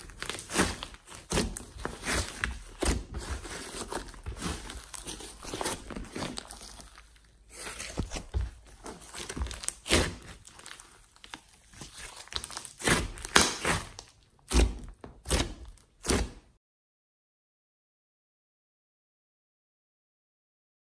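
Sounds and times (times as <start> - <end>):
slime squelching and popping: 0.0 - 16.5.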